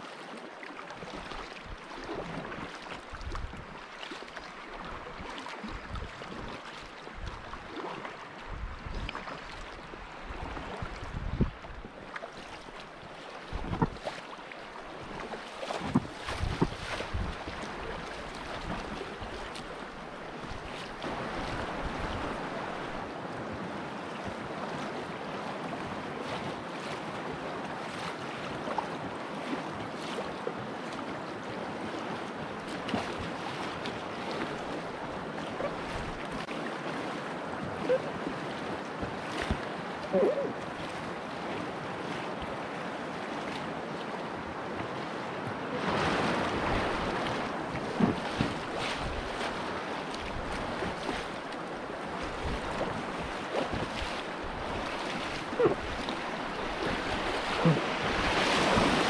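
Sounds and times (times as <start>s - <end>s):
paddle splashes and drips: 0.0s - 59.0s
water splashing against raft: 0.0s - 59.0s
river current rushing: 33.7s - 59.0s.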